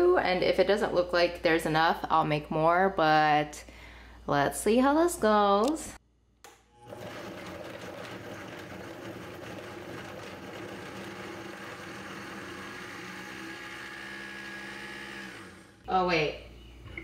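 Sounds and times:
blender motor chopping celery: 0:06.8 - 0:15.8.

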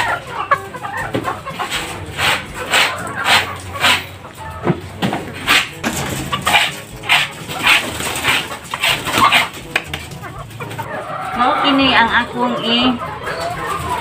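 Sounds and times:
scraper scraping concrete floor: 0:01.5 - 0:04.1, 0:05.3 - 0:09.7.

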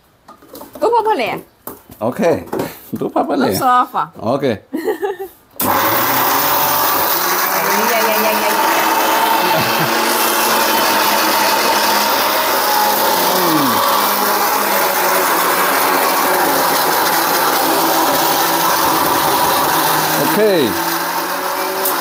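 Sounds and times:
mixer grinder motor whining: 0:05.6 - 0:22.0.

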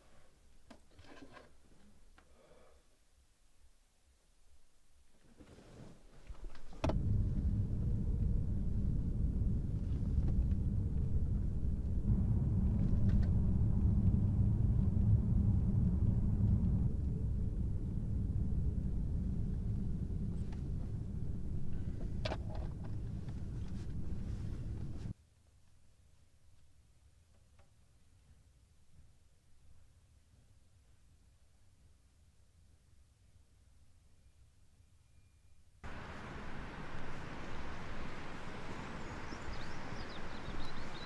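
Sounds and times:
car cabin rumble: 0:06.7 - 0:25.1.

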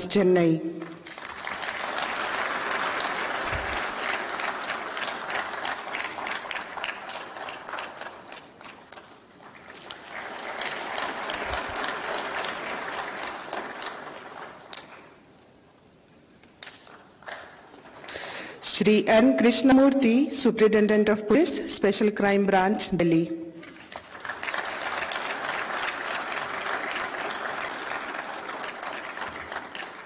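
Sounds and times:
audience applauding: 0:00.9 - 0:15.3, 0:23.6 - 0:30.0.

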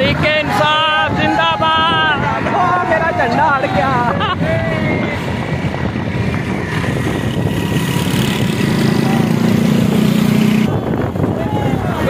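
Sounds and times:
bus engine: 0:04.1 - 0:11.8
motorcycle engine: 0:05.7 - 0:11.6.

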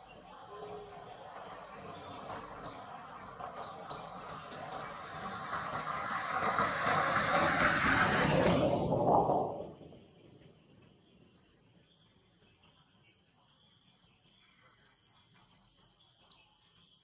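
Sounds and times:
high-pitched insect drone: 0:00.0 - 0:07.3, 0:07.9 - 0:17.0
loud rushing noise: 0:04.8 - 0:09.9.

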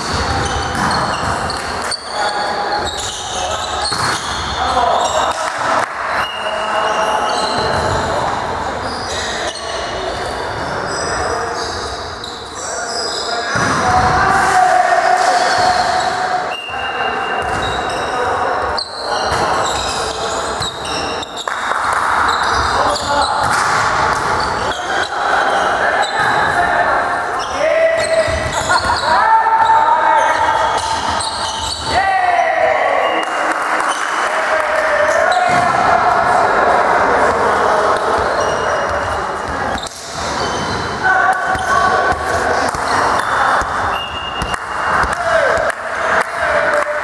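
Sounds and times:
ball bouncing on court floor: 0:00.0 - 0:02.0, 0:03.8 - 0:04.5, 0:20.6 - 0:24.5, 0:28.0 - 0:29.7, 0:35.3 - 0:35.8
shoes squeaking on court: 0:00.0 - 0:05.4, 0:06.2 - 0:13.6, 0:15.4 - 0:21.6, 0:22.2 - 0:26.6, 0:27.3 - 0:32.0, 0:37.9 - 0:45.1
volleyball hits: 0:00.0 - 0:06.4, 0:20.6 - 0:24.8, 0:27.8 - 0:32.0, 0:34.8 - 0:36.4, 0:37.2 - 0:47.0
voices echoing in hall: 0:00.0 - 0:47.0.

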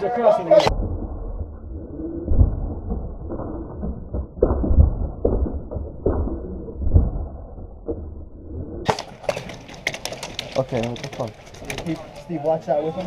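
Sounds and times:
deep irregular thumps: 0:00.7 - 0:09.9.

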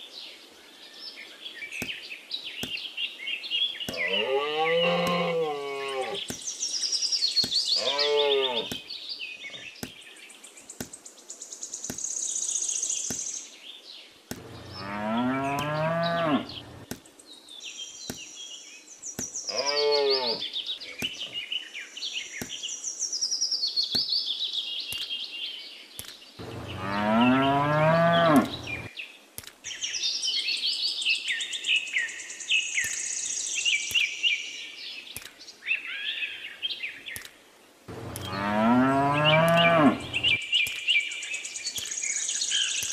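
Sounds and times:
birds chirping: 0:00.0 - 0:42.9
cows mooing: 0:03.9 - 0:06.2, 0:07.8 - 0:08.8, 0:14.4 - 0:16.8, 0:26.4 - 0:28.9, 0:37.9 - 0:40.4.

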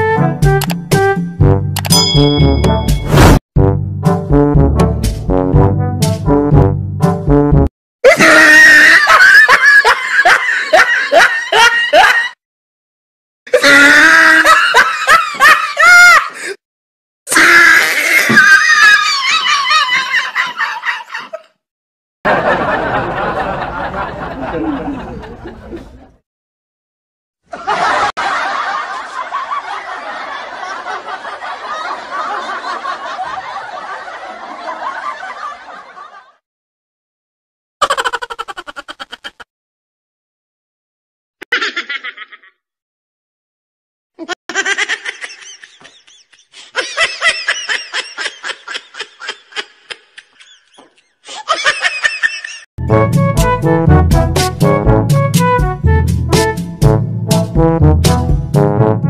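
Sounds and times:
laughter: 0:08.0 - 0:12.4, 0:13.5 - 0:16.6, 0:18.2 - 0:21.6, 0:22.3 - 0:26.2, 0:27.5 - 0:36.4, 0:37.8 - 0:39.5, 0:41.4 - 0:42.7, 0:44.2 - 0:52.7
rhythmic laughing: 0:37.8 - 0:39.5
second different laugh: 0:41.4 - 0:42.6.

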